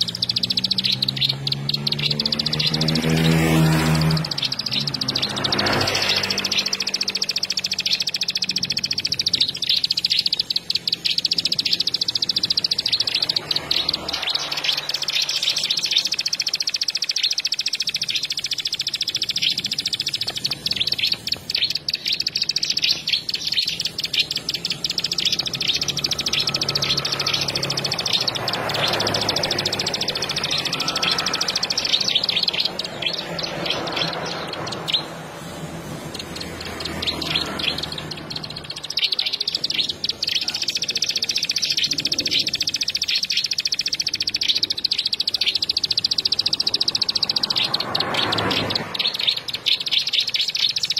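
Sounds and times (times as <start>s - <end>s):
bird trilling high: 0.0s - 50.9s.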